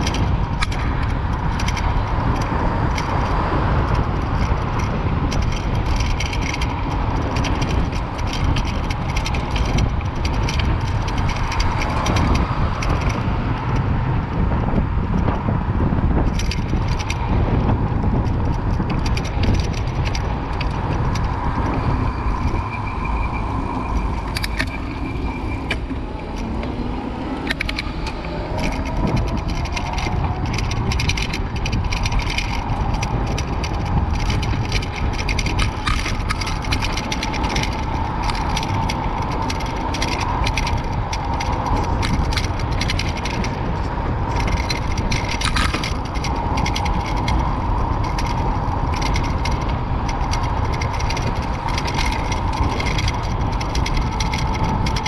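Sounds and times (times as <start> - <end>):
bicycle rattling and clicking: 0.0 - 55.0
wind rumbling on microphone: 0.0 - 55.0.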